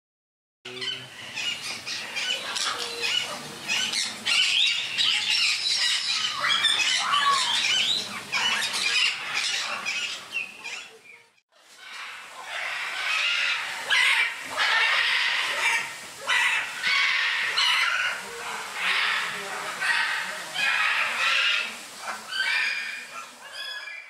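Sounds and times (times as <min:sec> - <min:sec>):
parrots squawking and chattering: 0:00.7 - 0:24.0.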